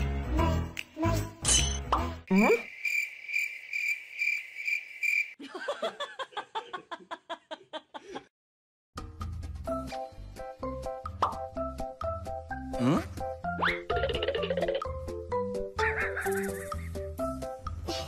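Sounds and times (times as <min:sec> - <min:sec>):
cricket chirping effect: 0:02.3 - 0:05.4.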